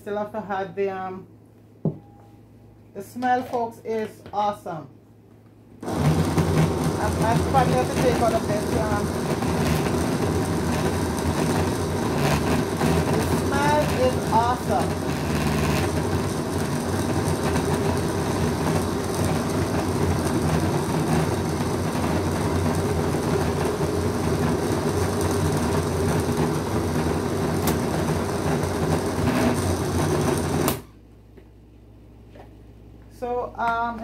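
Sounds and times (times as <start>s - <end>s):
electric blender running: 5.8s - 30.9s.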